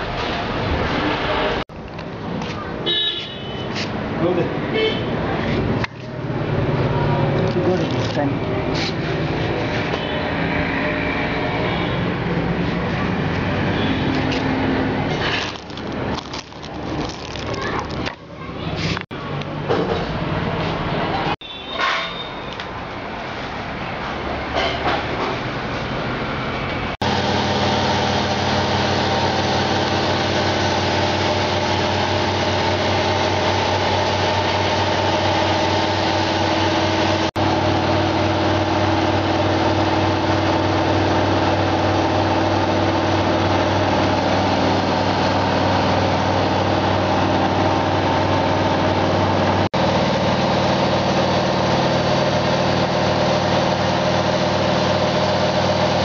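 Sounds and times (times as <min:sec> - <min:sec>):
steady mechanical hum: 0:22.0 - 0:56.0.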